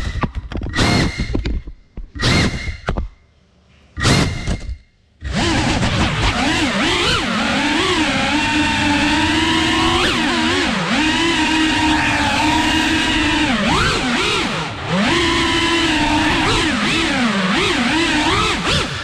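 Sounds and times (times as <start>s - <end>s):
quadcopter motors whining: 6.3s - 19.0s.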